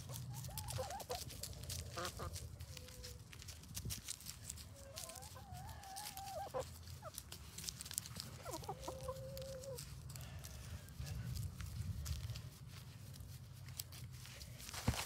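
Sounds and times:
hens calling: 0.0s - 3.5s, 4.4s - 11.4s
hens clucking: 0.0s - 11.5s.

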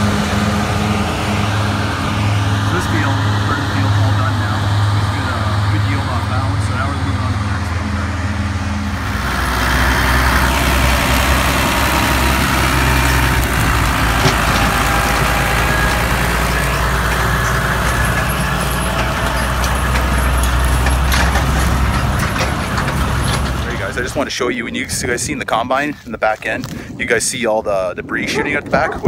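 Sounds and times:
tractor diesel engine running: 0.0s - 27.2s
light clatter of wagons: 9.1s - 26.8s.

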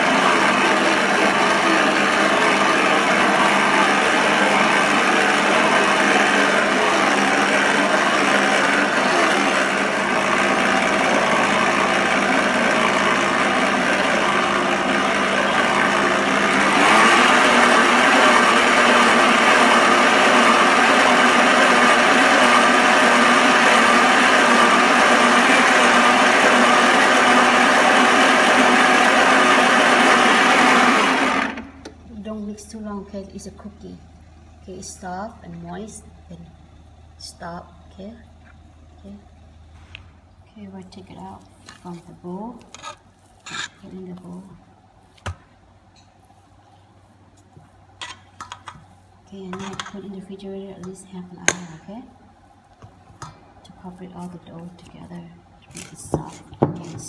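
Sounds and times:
stand mixer motor churning dough: 0.0s - 32.1s.

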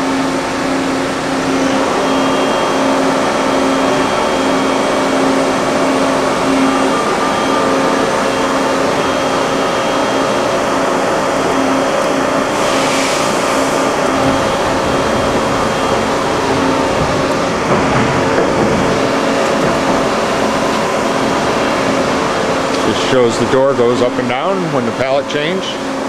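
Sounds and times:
machine hum with whining tones: 0.0s - 26.0s.

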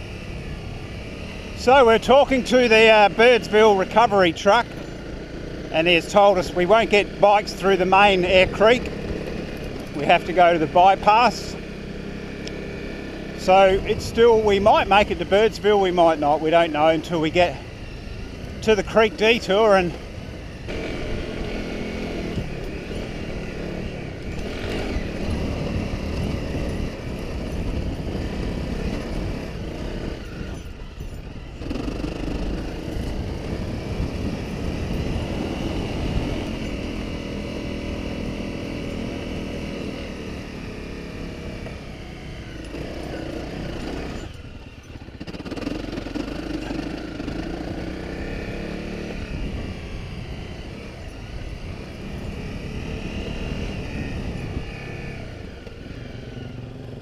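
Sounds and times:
motorcycle engine revving: 0.0s - 57.0s
wind noise on microphone: 16.5s - 40.4s, 41.2s - 56.7s.

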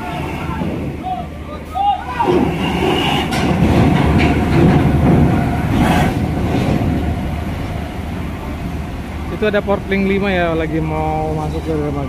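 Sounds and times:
bus engine pulling under load: 0.0s - 12.0s
steel ramp plates clattering: 2.3s - 7.0s.

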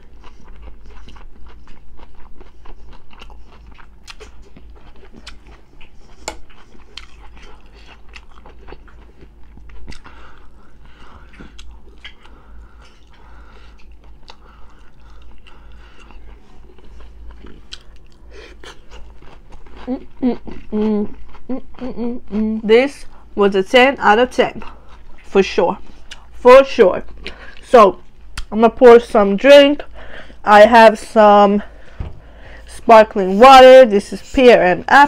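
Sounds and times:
crunchy chewing: 0.0s - 22.4s.

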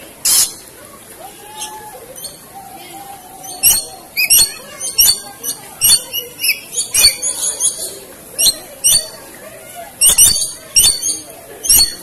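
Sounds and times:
lories shrieking: 0.3s - 0.6s, 1.4s - 9.3s, 10.0s - 12.0s.

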